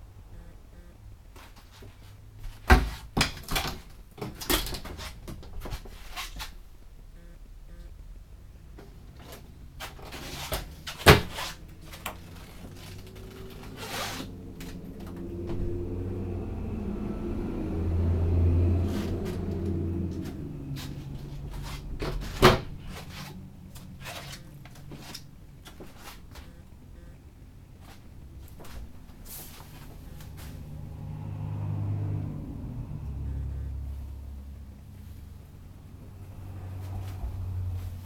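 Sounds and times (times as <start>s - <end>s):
door sliding and rubbing: 9.2s - 15.9s, 18.7s - 26.3s.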